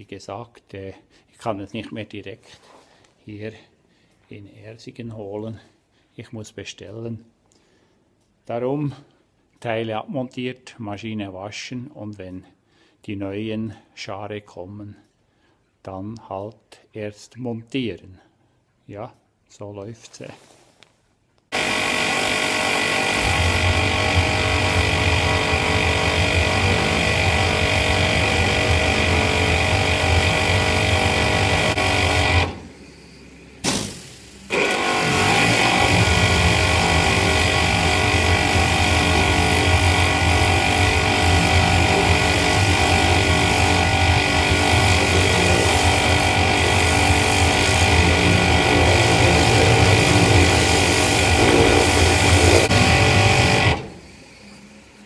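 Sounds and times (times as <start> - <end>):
pressure washer spraying: 21.6 - 32.6, 33.6 - 54.0.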